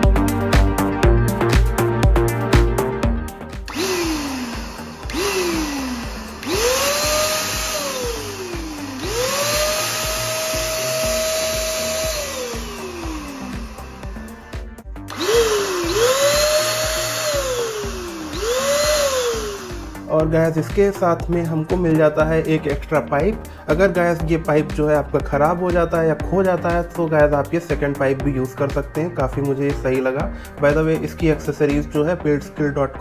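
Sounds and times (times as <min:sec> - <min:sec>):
electric paint sprayer motor whining: 0:03.5 - 0:20.3.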